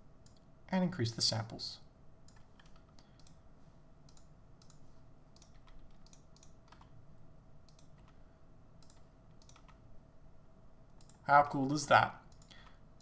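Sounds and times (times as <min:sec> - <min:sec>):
keyboard and mouse clicks: 0:00.2 - 0:00.5, 0:02.3 - 0:03.4, 0:04.1 - 0:07.0, 0:07.6 - 0:08.2, 0:08.8 - 0:09.8, 0:11.0 - 0:11.2, 0:12.3 - 0:12.8.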